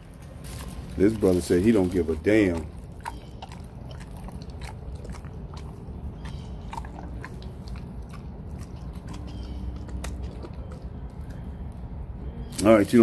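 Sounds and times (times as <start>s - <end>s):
dog chewing meat: 1.2s - 11.8s
jaws smacking clicks: 2.6s - 11.8s.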